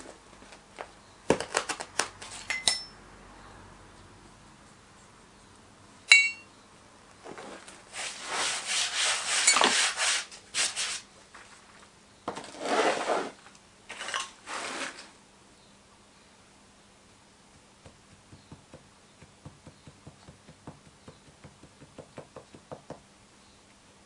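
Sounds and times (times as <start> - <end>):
metallic clink: 2.5 - 3.0, 6.1 - 6.5
gritty sand scraping: 7.3 - 11.5, 12.4 - 15.1.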